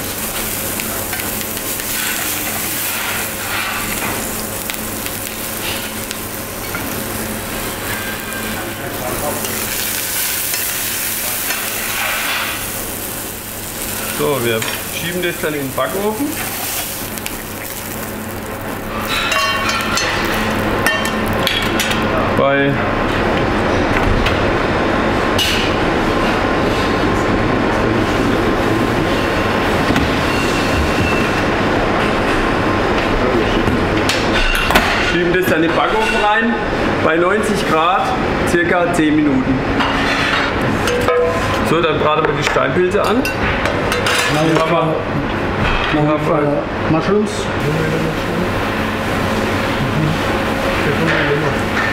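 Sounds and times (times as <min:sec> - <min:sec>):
meat sizzling in a frying pan: 0:00.0 - 0:22.1
kitchen ventilation rushing: 0:00.0 - 0:51.9.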